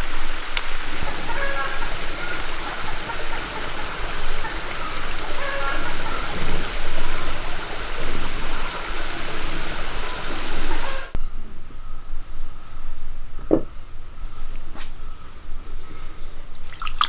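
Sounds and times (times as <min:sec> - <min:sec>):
stream flowing over rocks: 0:00.0 - 0:11.2.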